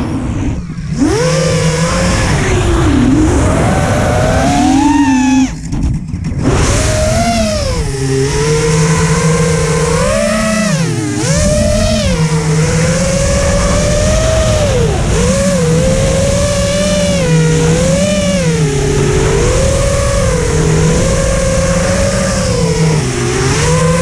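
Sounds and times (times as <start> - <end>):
wind rush: 0.0 - 10.0
drone motors whining: 0.0 - 24.0.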